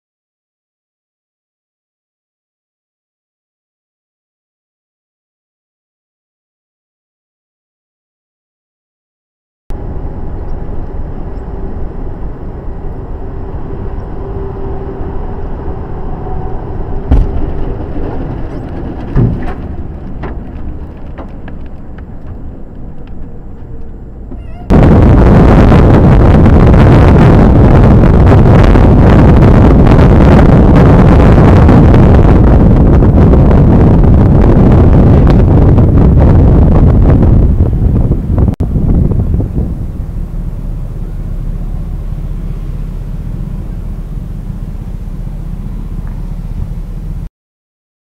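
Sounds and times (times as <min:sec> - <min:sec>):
truck engine and road noise: 0:09.7 - 0:47.3
wind noise on microphone: 0:09.7 - 0:47.3.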